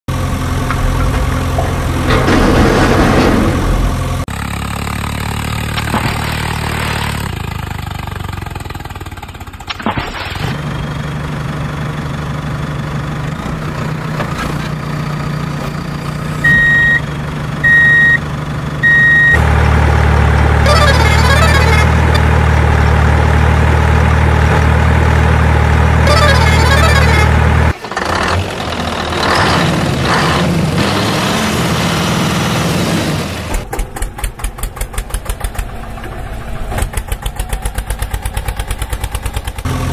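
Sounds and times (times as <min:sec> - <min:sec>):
heavy vehicle engine: 0:00.0 - 0:39.9
short high beeps: 0:16.5 - 0:17.0.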